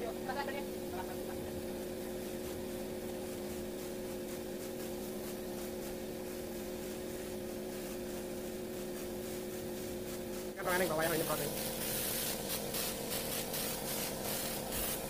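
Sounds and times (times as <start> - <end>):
air compressor humming: 0.0 - 15.0
paint spray gun hissing: 0.0 - 15.0.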